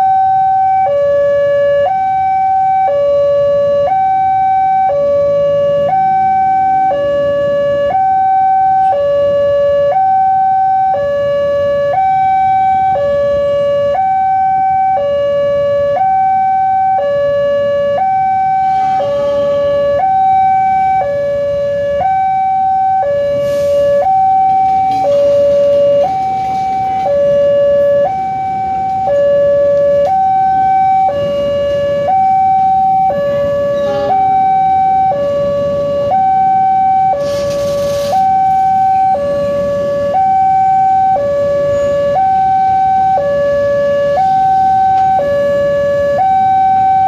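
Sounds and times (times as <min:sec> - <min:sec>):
level crossing two-tone alarm: 0:00.0 - 0:47.0
passenger train rumbling: 0:18.1 - 0:22.0, 0:22.8 - 0:42.8.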